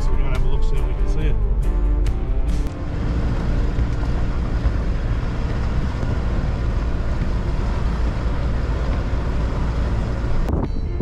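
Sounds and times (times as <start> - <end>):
diesel engine rumble: 0.0 - 11.0
wind noise: 3.6 - 11.0.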